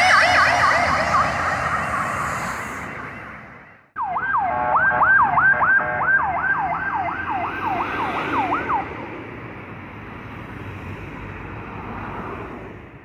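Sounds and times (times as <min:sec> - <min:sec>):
police siren yelping: 0:00.0 - 0:09.0
traffic noise: 0:00.0 - 0:13.0.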